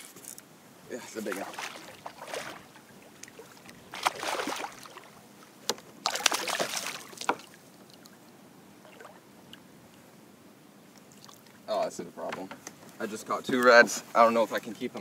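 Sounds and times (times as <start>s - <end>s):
water lapping: 1.0s - 10.0s, 10.9s - 11.7s
fish splashing at water surface: 1.3s - 5.2s, 6.0s - 8.1s.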